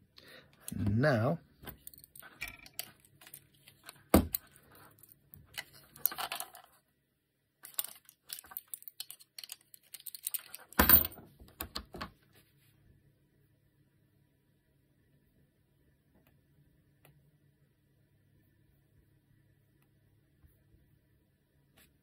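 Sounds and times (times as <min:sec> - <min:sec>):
plastic parts clicking and rattling: 0:01.6 - 0:06.8, 0:07.6 - 0:12.1.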